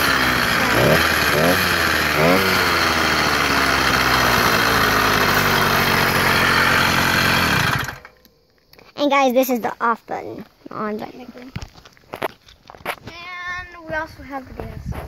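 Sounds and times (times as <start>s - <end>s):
two-stroke engine revving and idling: 0.0s - 8.2s.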